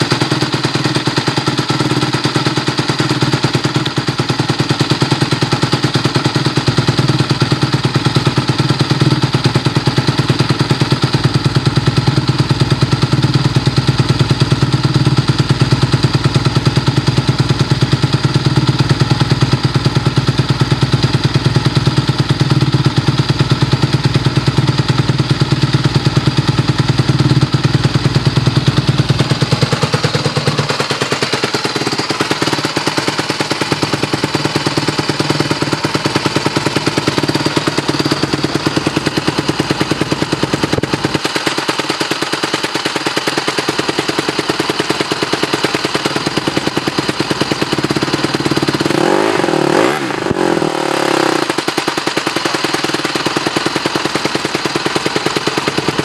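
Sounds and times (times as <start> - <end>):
motorcycle engine idling: 0.0 - 56.0
engine revving: 47.7 - 52.1.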